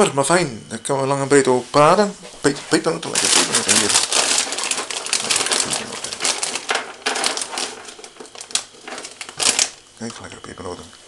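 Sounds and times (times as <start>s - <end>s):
plastic packaging crinkling: 2.4s - 10.0s.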